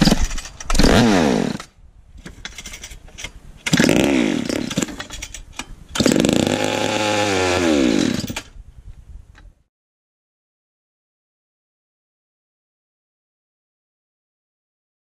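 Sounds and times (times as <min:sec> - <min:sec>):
two-stroke engine revving: 0:00.0 - 0:01.7, 0:03.7 - 0:04.8, 0:06.0 - 0:08.4.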